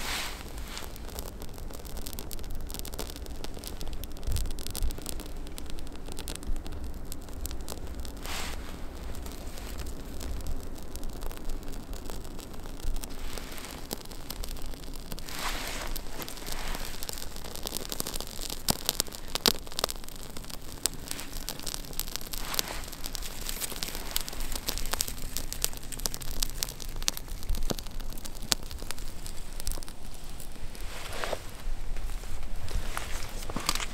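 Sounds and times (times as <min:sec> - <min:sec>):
wood shavings rustling: 0:00.0 - 0:01.4, 0:15.2 - 0:19.4, 0:20.5 - 0:33.9
kindling fire crackling: 0:00.0 - 0:33.9.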